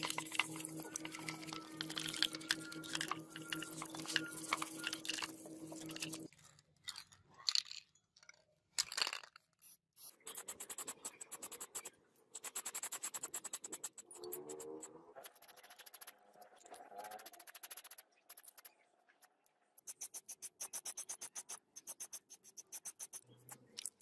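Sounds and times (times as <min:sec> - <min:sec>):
fast regular rattle: 0:00.0 - 0:06.3
steady low hum: 0:00.0 - 0:06.3
toothbrush scrubbing metal parts: 0:00.0 - 0:07.1, 0:10.0 - 0:16.2, 0:19.8 - 0:24.0
spray paint hissing: 0:19.8 - 0:23.2.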